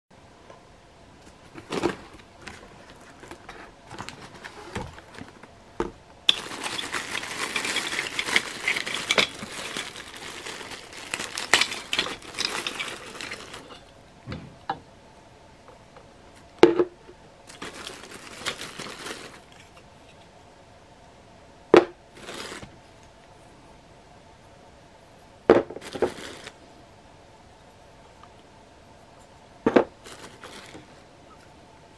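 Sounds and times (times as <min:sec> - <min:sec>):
paper and bubble wrap rustling: 0:01.5 - 0:05.5, 0:06.3 - 0:13.9, 0:17.5 - 0:19.7, 0:22.1 - 0:22.8, 0:25.8 - 0:26.6, 0:29.8 - 0:31.0.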